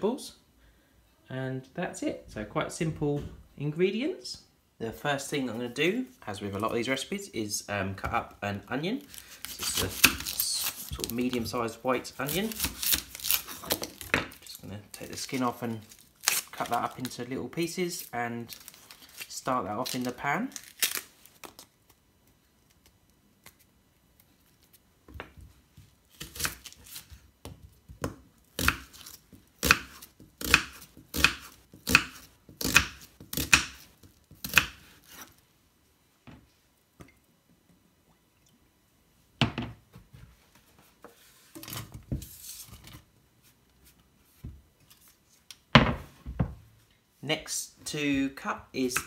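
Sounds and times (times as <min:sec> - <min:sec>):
knife chopping on wooden board: 0:28.0 - 0:28.9, 0:29.6 - 0:35.2.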